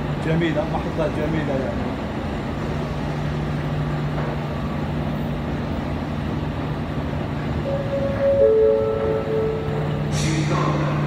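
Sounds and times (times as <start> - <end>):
escalator humming: 0.0 - 11.0
station noise: 0.0 - 11.0
electronic tones: 7.6 - 10.1.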